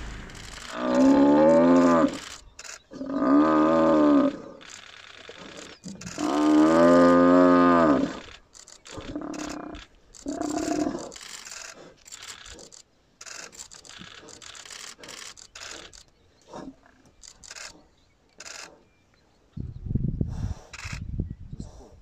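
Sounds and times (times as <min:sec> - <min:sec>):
buffalo bellowing in distress: 0:00.0 - 0:02.3, 0:06.1 - 0:08.3
scattered short noises: 0:00.0 - 0:02.9, 0:03.7 - 0:18.8.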